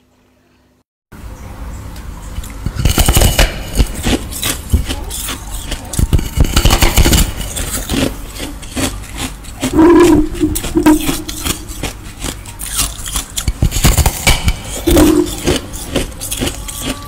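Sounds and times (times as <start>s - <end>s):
person chewing food: 3.7s - 17.0s.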